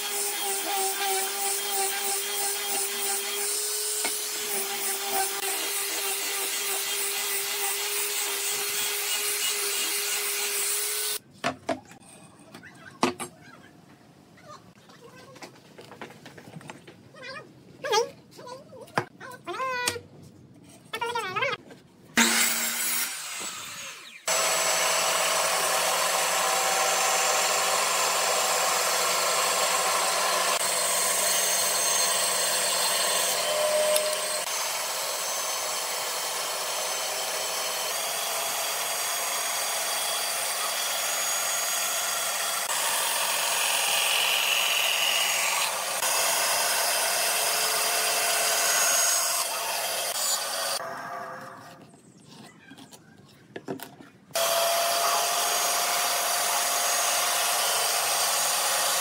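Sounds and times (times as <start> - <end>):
band saw cutting wood: 0.0 - 11.2, 22.2 - 51.9, 54.4 - 59.0.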